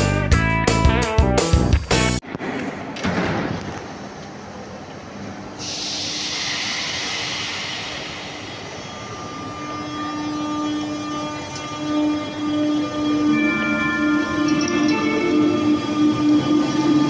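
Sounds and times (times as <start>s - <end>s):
train rumble: 2.3s - 17.0s
loud hiss of air: 5.6s - 9.4s.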